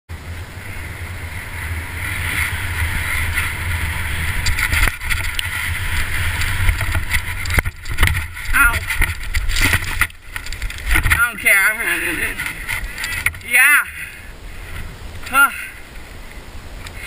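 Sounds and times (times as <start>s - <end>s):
tyres rolling on dirt: 0.1s - 15.3s
wind rushing on microphone: 0.1s - 17.0s
bike knocks and rattles: 1.9s - 13.5s.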